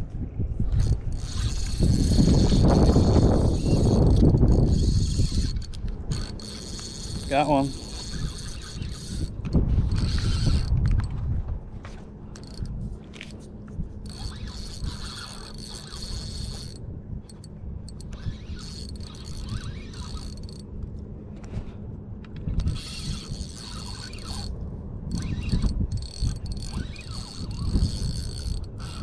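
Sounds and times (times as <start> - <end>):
fishing reel whirring: 0.7 - 11.1, 12.3 - 13.4, 14.0 - 20.7, 22.4 - 29.0.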